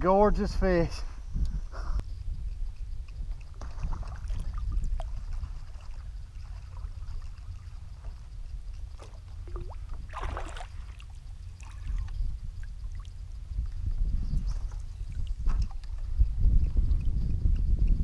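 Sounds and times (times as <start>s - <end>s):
low rumble: 1.3s - 18.0s
water trickling and lapping: 2.5s - 16.3s
water splashing: 3.6s - 8.2s, 8.9s - 12.1s.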